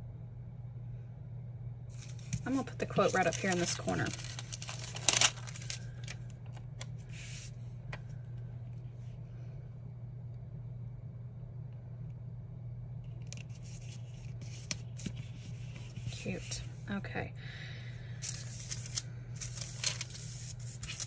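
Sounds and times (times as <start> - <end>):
steady low hum: 0.0 - 21.0
backing sheet crinkling: 1.9 - 7.5, 18.2 - 21.0
paper rustling and taps: 4.1 - 5.8.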